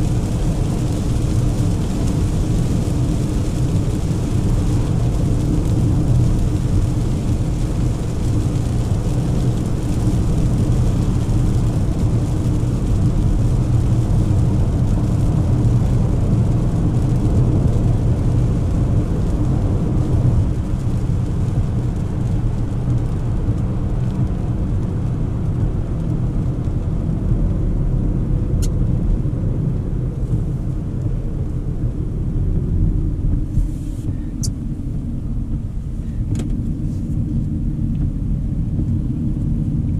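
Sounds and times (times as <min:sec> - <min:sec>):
engine and tyres rumbling: 0:00.0 - 0:39.9
hiss of water spray from tyres: 0:33.5 - 0:34.6.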